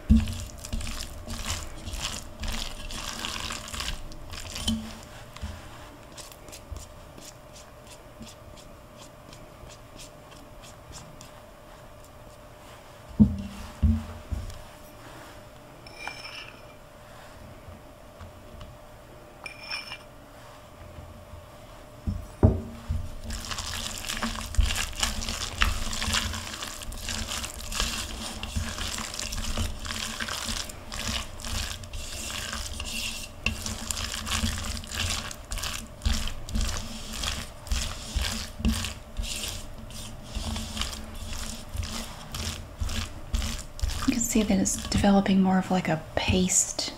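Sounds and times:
spatula mashing mixture in bowl: 0:00.0 - 0:15.2, 0:21.4 - 0:46.7
knock: 0:22.4 - 0:22.8.

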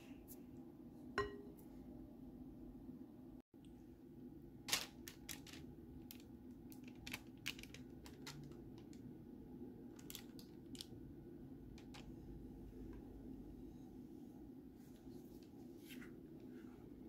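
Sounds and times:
low steady hum: 0:00.0 - 0:17.0
parchment paper crinkling: 0:04.7 - 0:09.1, 0:09.9 - 0:10.9.

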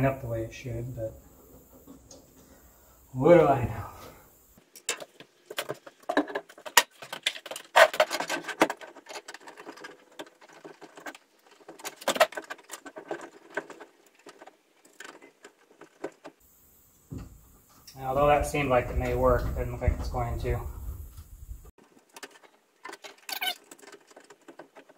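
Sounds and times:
small metal parts clicking and rattling: 0:04.6 - 0:16.4, 0:21.8 - 0:24.9.

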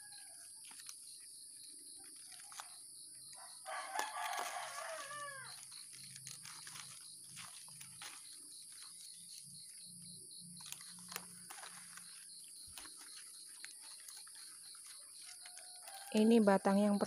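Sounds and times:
rooster crowing: 0:00.0 - 0:00.5, 0:03.4 - 0:05.6, 0:15.3 - 0:16.4
high insect buzz: 0:00.0 - 0:17.0.

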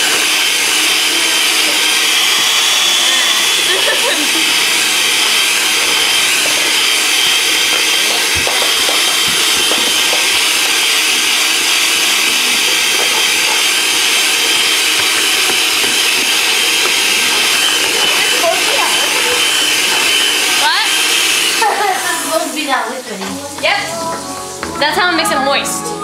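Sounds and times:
electric hand mixer whine: 0:00.0 - 0:26.0
beaters knocking bowl: 0:03.3 - 0:21.9.

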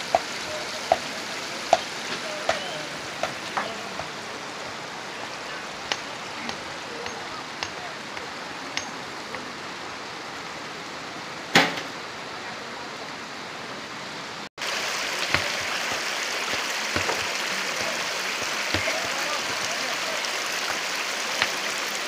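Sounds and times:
sharp knock: 0:11.5 - 0:12.0.

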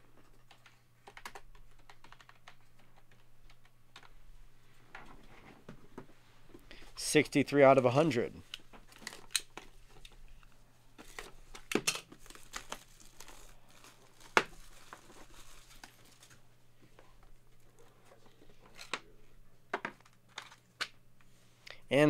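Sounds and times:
cardboard crinkling and tearing: 0:12.2 - 0:16.4.

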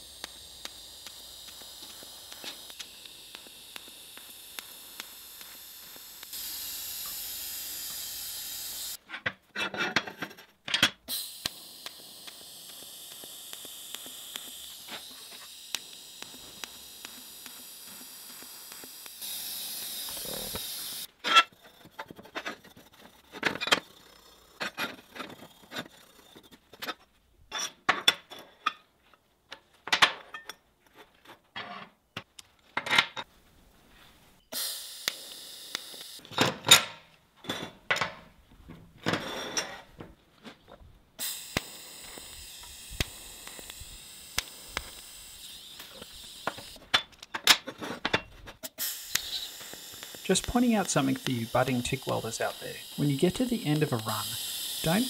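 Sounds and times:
welding arc hissing: 0:00.0 - 0:09.0, 0:11.1 - 0:21.2, 0:34.4 - 0:36.2, 0:41.2 - 0:46.9, 0:48.6 - 0:55.0.

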